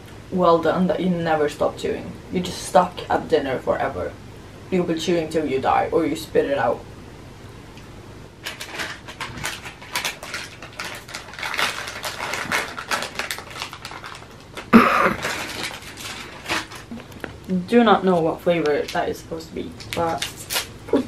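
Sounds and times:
plastic wrapper crinkling: 0:08.4 - 0:17.5, 0:18.2 - 0:21.0.

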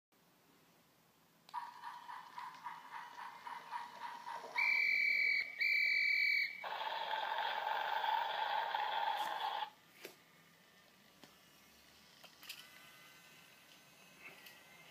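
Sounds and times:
toy pulsing tone: 0:01.5 - 0:09.7
electronic rushing train noise: 0:01.6 - 0:05.6, 0:06.5 - 0:09.7, 0:10.4 - 0:14.9
long electronic beeps: 0:04.6 - 0:06.8.

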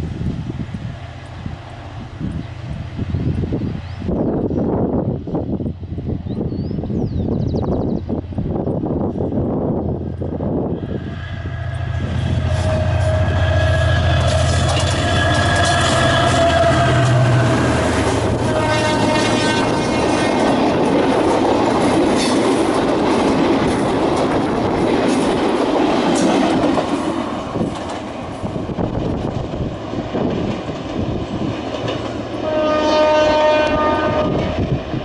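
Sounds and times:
diesel locomotive passing: 0:00.0 - 0:35.0
locomotive horn chord: 0:11.3 - 0:20.1, 0:32.4 - 0:34.6
train wheels knocking on rail joints: 0:14.1 - 0:29.5, 0:30.2 - 0:32.5.

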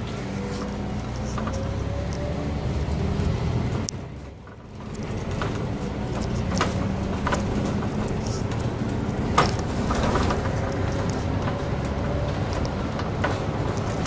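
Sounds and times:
bus engine humming: 0:00.0 - 0:14.0
clicks and rattles: 0:03.2 - 0:14.0.

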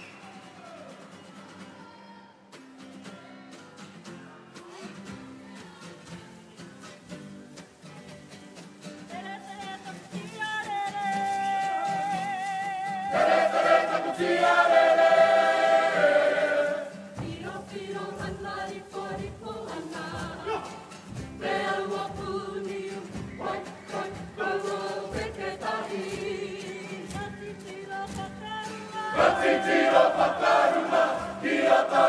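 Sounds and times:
group singing together: 0:12.9 - 0:32.0.

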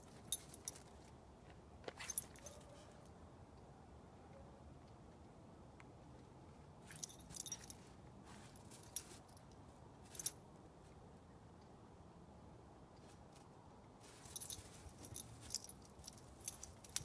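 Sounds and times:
dog collar tags jingling: 0:00.1 - 0:00.9, 0:02.0 - 0:02.8, 0:06.9 - 0:07.8, 0:14.1 - 0:17.0.

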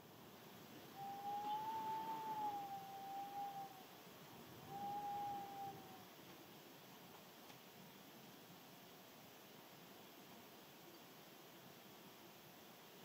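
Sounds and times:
wind whistling: 0:01.0 - 0:03.8, 0:04.6 - 0:06.0.

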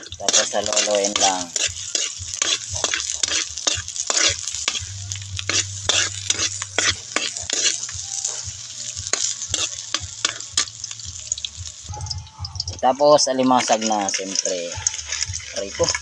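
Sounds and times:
metal ladle scraping a wok: 0:00.0 - 0:08.0, 0:09.1 - 0:10.7
garlic and onion sizzling: 0:00.0 - 0:16.0.

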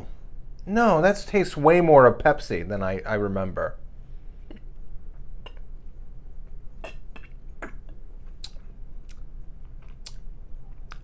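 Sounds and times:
lip smacks: 0:05.4 - 0:05.7, 0:06.8 - 0:11.0.

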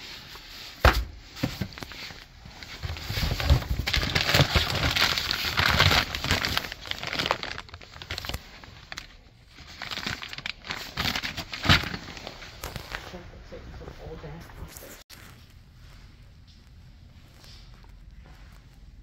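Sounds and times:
plastic packaging crinkling: 0:01.7 - 0:13.1.

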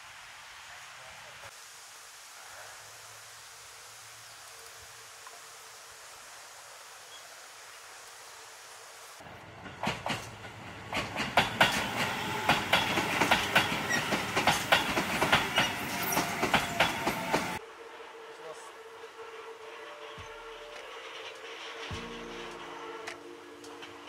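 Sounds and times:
faint steady hiss: 0:00.0 - 0:09.5
train wheels clattering over rails: 0:09.4 - 0:17.6, 0:20.0 - 0:24.0.

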